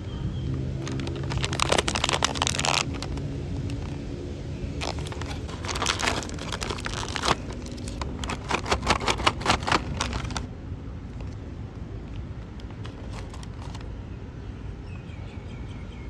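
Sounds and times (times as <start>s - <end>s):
crunchy food being chewed: 0.8s - 3.8s, 4.8s - 10.5s.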